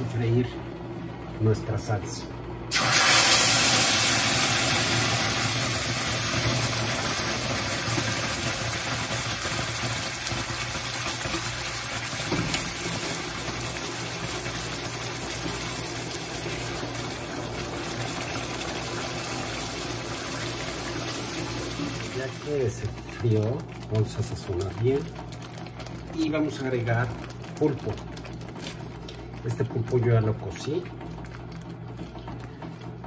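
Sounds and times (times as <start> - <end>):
sauce sizzling in hot oil: 2.7 - 22.6.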